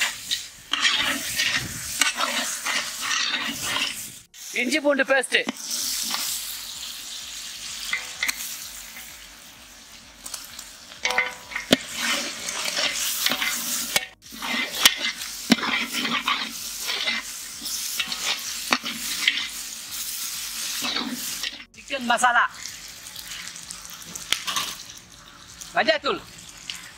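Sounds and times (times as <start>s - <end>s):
metal ladle scraping a pot: 0.0s - 4.2s, 11.0s - 19.6s, 20.6s - 21.7s, 23.1s - 25.3s
masala sizzling in oil: 0.0s - 26.9s.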